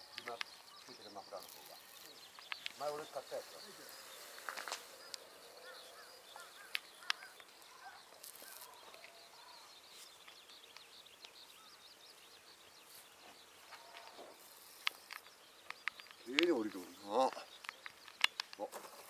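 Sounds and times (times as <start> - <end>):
small birds chirping: 0.0 - 19.0
sharp clicks: 0.1 - 3.2, 4.3 - 9.2, 13.8 - 18.7.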